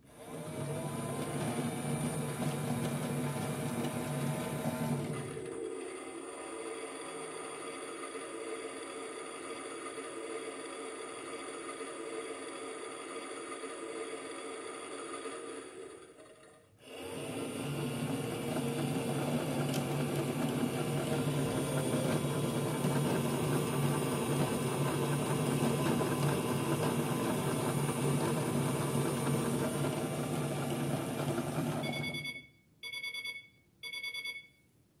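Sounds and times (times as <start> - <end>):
toy washing machine motor humming: 0.0 - 32.2
short electronic beeps: 31.8 - 34.7.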